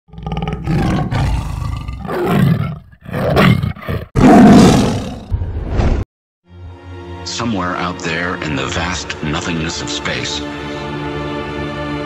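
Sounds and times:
large animal roaring: 0.1s - 5.3s.

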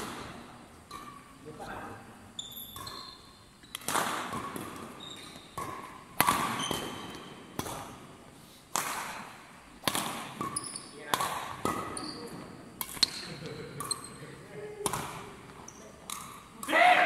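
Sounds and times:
racket hitting shuttlecock: 0.0s - 1.4s, 2.6s - 14.0s, 14.8s - 16.9s
shoes squeaking on floor: 2.3s - 7.5s, 10.4s - 11.0s, 11.9s - 13.2s, 15.6s - 16.0s.

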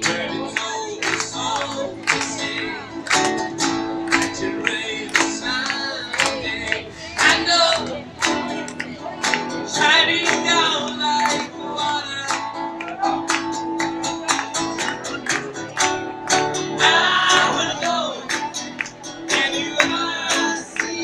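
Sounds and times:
man singing: 0.0s - 3.0s, 3.7s - 13.2s, 16.6s - 18.6s, 19.2s - 21.0s
acoustic guitar strumming: 0.0s - 21.0s.

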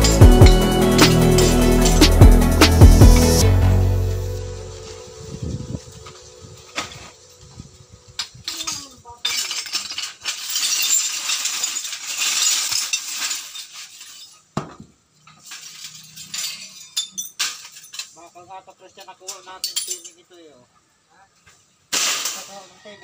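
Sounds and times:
dense glass crackling: 8.2s - 14.6s, 15.2s - 18.3s
broken glass clinking and crunching: 8.2s - 18.4s, 19.0s - 20.2s, 21.9s - 22.8s.

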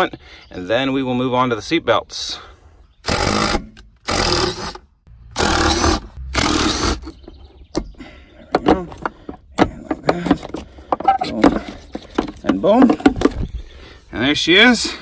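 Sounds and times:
rustling of wiring: 8.6s - 13.7s.

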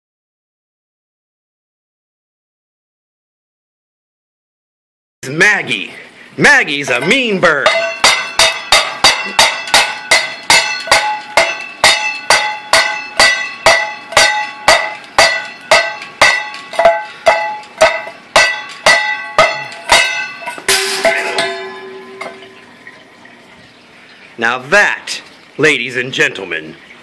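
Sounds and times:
metal bowl clanging: 6.7s - 23.5s
metal bowl clattering: 6.8s - 23.5s.

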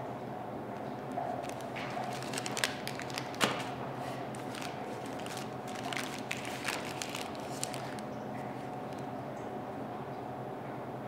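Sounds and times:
background hum: 0.0s - 11.0s.

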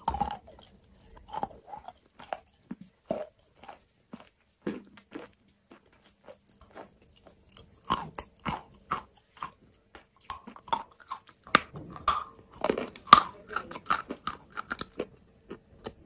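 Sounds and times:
chalk crunching while chewed: 0.0s - 16.0s.

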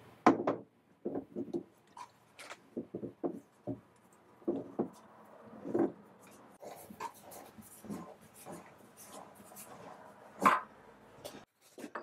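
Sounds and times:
metal clunks and rubs: 5.6s - 10.7s.

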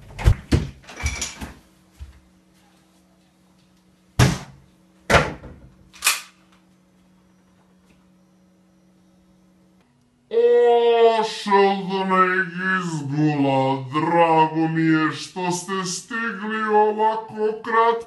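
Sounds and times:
faint hum: 0.0s - 18.0s
bangs on a wooden door: 4.2s - 5.7s.

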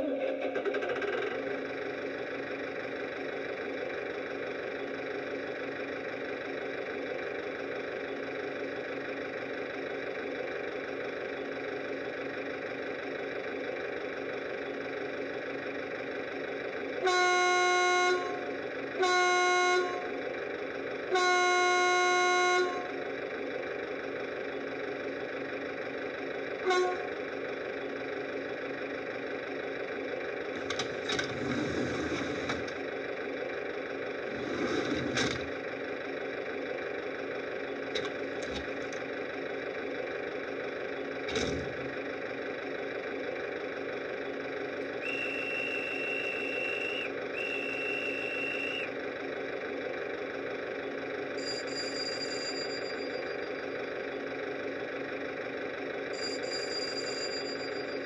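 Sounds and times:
diesel engine idling: 0.0s - 58.0s
train horn: 17.0s - 20.1s, 21.1s - 22.9s, 26.6s - 27.1s.

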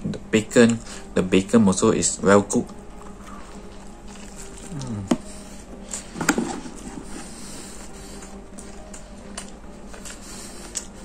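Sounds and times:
faint background music: 0.0s - 11.0s
person chewing: 2.6s - 11.0s.

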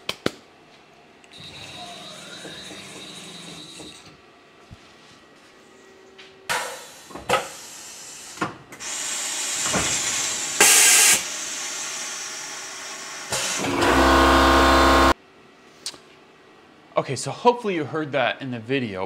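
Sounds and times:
loud air hiss: 6.8s - 13.7s
air compressor humming: 8.8s - 15.2s.

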